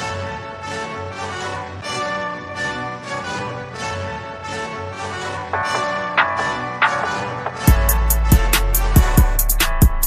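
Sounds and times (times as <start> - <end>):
sustained instrumental chords: 1.5 - 10.0
beat with heavy bass and drums: 5.6 - 10.0.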